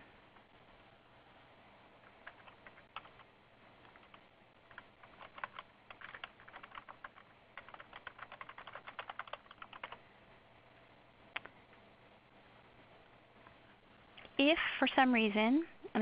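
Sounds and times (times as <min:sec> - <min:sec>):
typing on a computer keyboard: 0:02.0 - 0:10.0.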